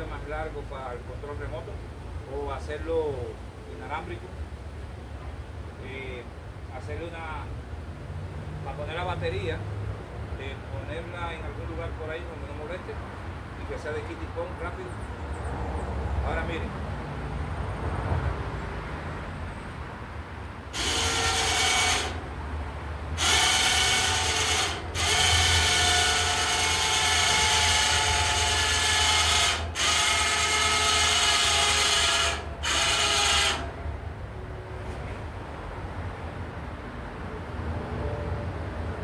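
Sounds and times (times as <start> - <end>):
electric winch motor whine: 20.7 - 22.4, 23.2 - 33.8.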